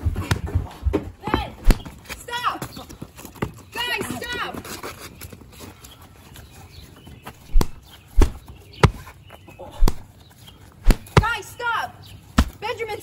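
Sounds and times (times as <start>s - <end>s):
heavy punch thumps: 1.6s - 1.8s, 7.5s - 9.0s, 9.8s - 10.1s, 10.8s - 11.4s.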